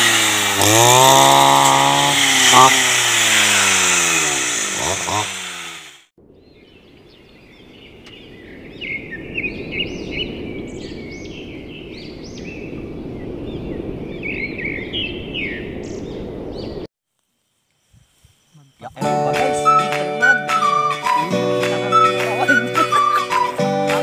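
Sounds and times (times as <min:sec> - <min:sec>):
small birds chirping: 0:06.2 - 0:16.9, 0:17.7 - 0:20.2.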